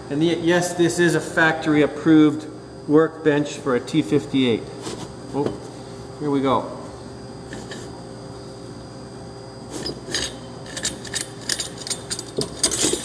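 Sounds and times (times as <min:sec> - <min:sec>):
metal clinking: 0:09.8 - 0:13.0.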